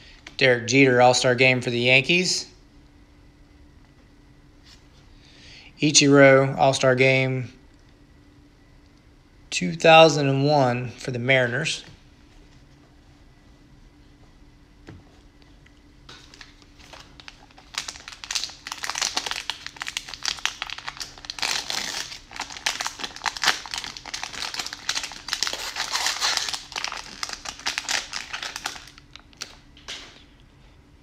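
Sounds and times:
plastic wrapper crinkling: 16.1s - 30.1s.

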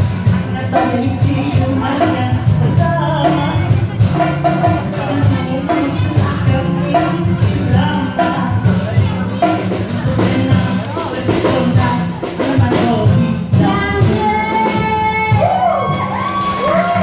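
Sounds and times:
drums: 0.0s - 17.0s
women singing: 13.1s - 17.0s.

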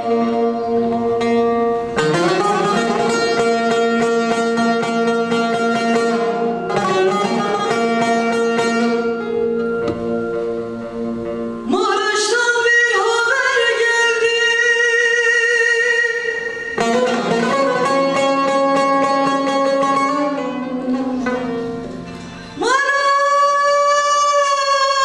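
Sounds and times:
plucked lute strings: 0.0s - 14.3s, 16.5s - 22.8s
woman singing: 11.7s - 21.2s, 22.6s - 25.0s.

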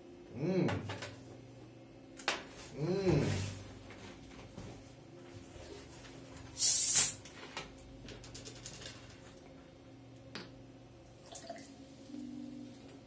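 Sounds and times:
carbonation hissing from bottle: 6.6s - 7.2s
water pouring into glass: 11.2s - 11.7s.

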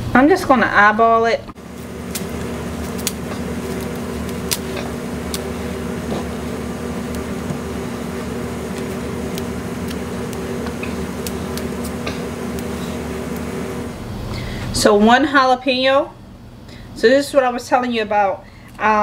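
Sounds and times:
motor humming: 1.6s - 14.6s.

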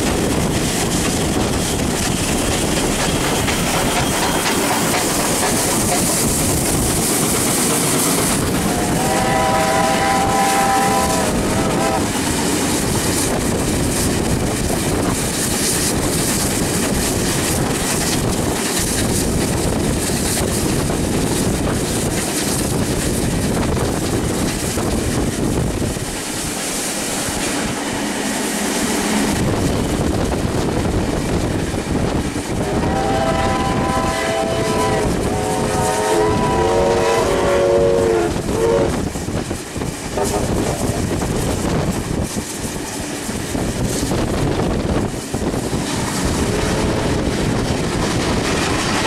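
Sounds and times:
train wheels and wind rushing: 0.0s - 49.0s
steam whistle blasts: 8.6s - 12.1s, 32.6s - 39.0s.

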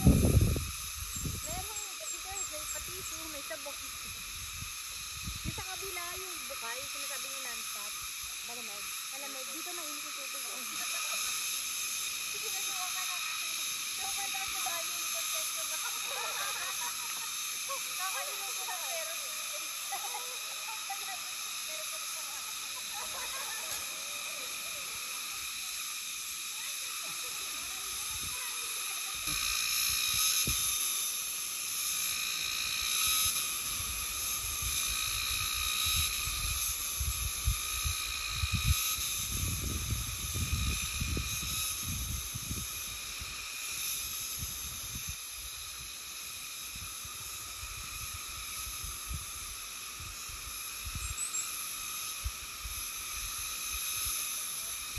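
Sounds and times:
wind buffeting microphone: 0.0s - 1.8s, 36.2s - 42.7s
insects chorus: 0.0s - 54.9s.

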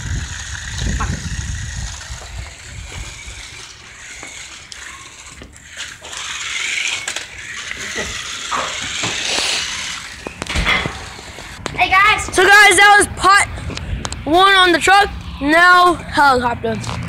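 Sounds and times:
toy truck motor whirring: 0.0s - 11.8s.

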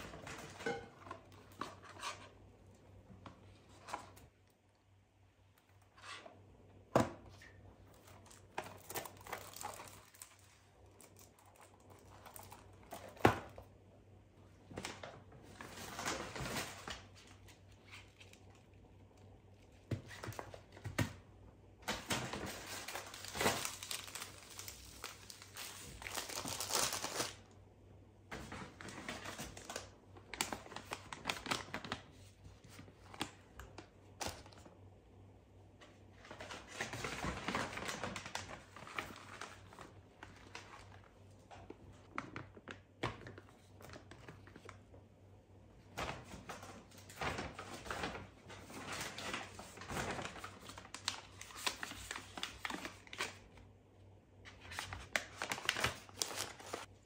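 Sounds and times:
plastic and paper bags crinkling: 7.9s - 13.6s, 21.8s - 27.5s, 28.3s - 34.6s, 36.1s - 44.8s, 46.1s - 53.6s, 54.5s - 57.0s.

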